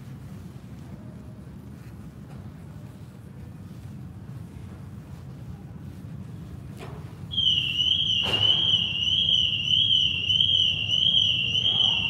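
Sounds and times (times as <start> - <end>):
warbling electronic alarm: 7.3 - 12.0.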